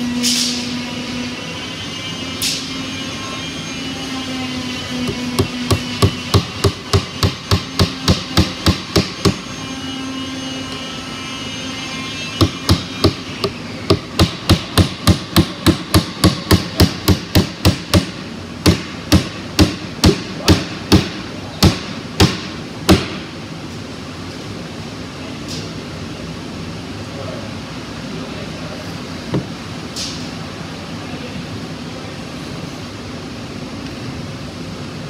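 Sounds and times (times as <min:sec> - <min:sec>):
hammer driving nails: 0:05.0 - 0:09.4, 0:12.4 - 0:23.2.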